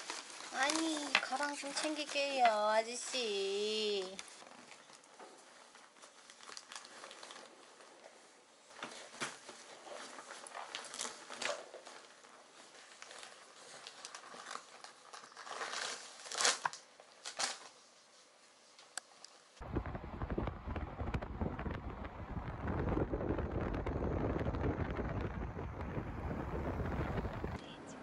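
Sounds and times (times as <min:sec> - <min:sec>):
rustling and crinkling in tote bag: 0:00.0 - 0:18.6.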